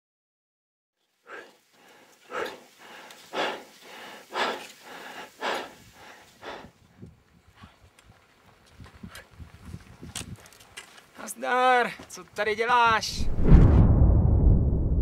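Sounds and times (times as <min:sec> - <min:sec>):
person breathing heavily: 0:01.2 - 0:06.8
footsteps on stones: 0:07.8 - 0:12.8.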